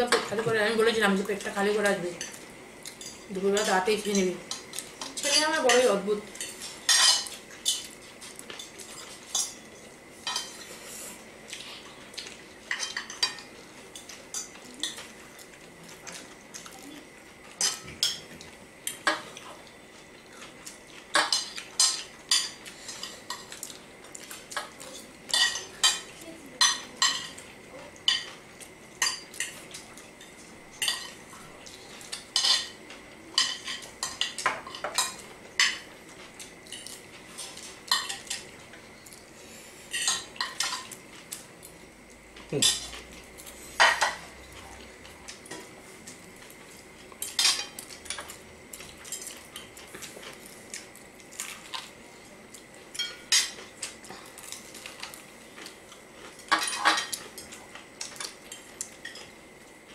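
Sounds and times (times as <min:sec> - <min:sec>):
forks clinking on plates: 0:02.2 - 0:10.7, 0:12.7 - 0:15.1, 0:24.6 - 0:27.4, 0:29.0 - 0:31.2, 0:32.0 - 0:32.8, 0:33.4 - 0:35.9, 0:36.7 - 0:38.5, 0:42.5 - 0:43.1, 0:47.2 - 0:48.4, 0:53.0 - 0:55.1, 0:56.4 - 0:59.3.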